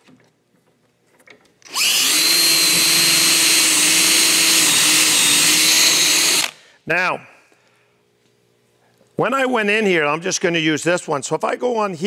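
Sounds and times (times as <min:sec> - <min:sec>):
cordless drill boring into wood: 0:01.7 - 0:06.6.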